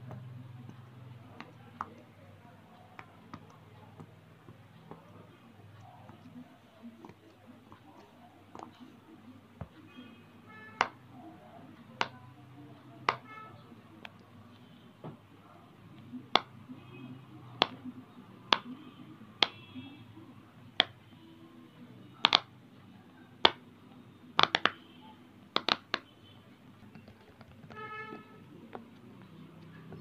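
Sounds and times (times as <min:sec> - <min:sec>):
fidget toy bubbles popping: 0:24.4 - 0:24.8.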